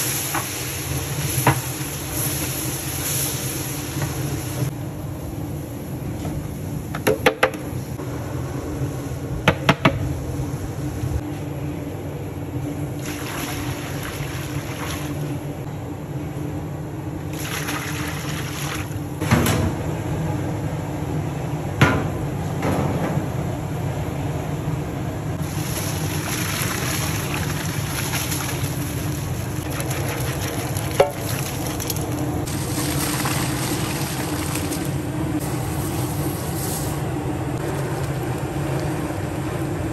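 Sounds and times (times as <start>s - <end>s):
dry ingredients pouring: 25.5s - 37.0s.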